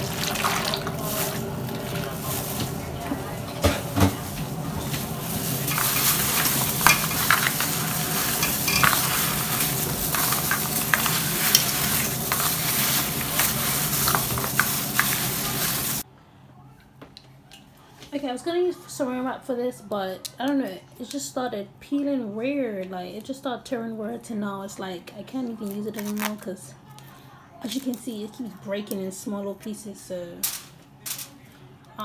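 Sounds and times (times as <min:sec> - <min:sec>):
water pouring into a pan: 0:00.0 - 0:02.1
crackly plastic glove rustling: 0:00.0 - 0:16.0, 0:25.6 - 0:26.5
potato pieces knocking: 0:03.6 - 0:16.0.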